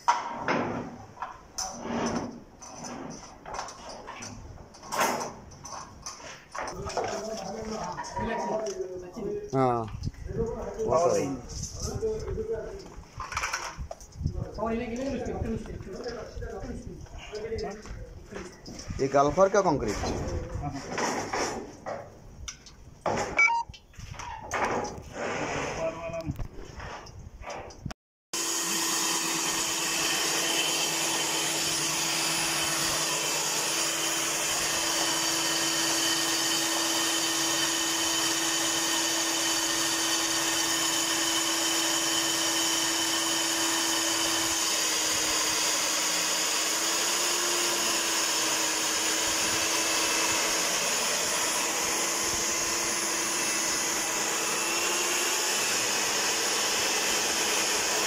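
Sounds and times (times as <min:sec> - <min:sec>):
core drill motor whine: 0:28.4 - 0:58.0.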